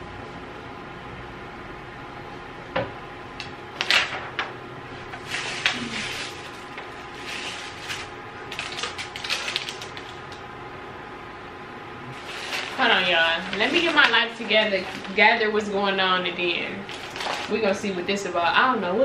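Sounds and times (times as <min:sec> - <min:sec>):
paper sheet rustling: 0:05.1 - 0:10.2, 0:12.1 - 0:15.8, 0:16.7 - 0:17.8.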